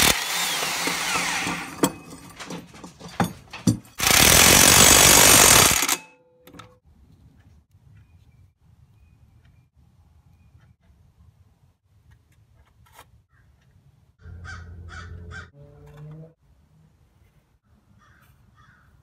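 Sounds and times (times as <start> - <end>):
impact wrench hammering: 0.0 - 6.1
metal clinks: 1.4 - 4.0.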